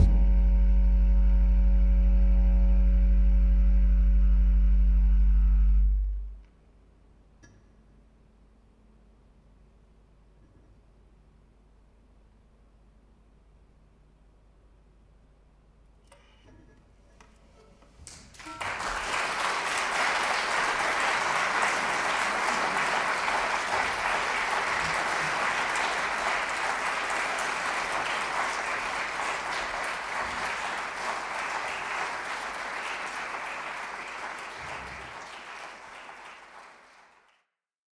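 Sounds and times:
audience applauding: 18.0 - 37.4.

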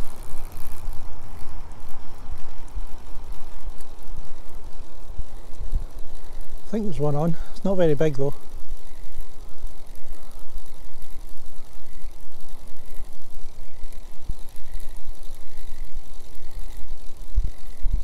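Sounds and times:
wind buffeting microphone: 16.9 - 18.0.

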